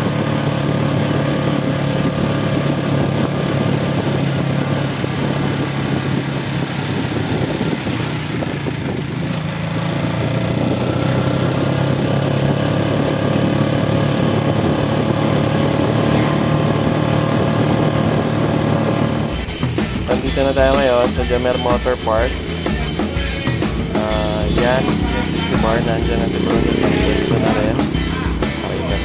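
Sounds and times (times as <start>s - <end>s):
motorcycle engine running: 0.0s - 29.0s
road noise: 0.0s - 29.0s
wind noise: 0.0s - 29.0s.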